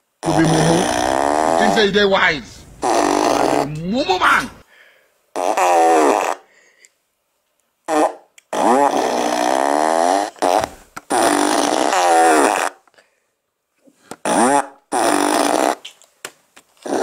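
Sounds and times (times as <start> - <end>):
woman making wavering vocal sounds: 0.3 - 1.6.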